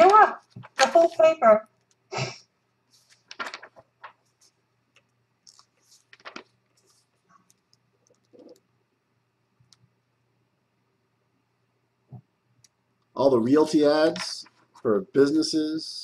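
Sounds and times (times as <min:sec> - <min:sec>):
faint irregular clicks and taps: 0:01.6 - 0:02.1, 0:04.9 - 0:08.7, 0:09.6 - 0:10.0.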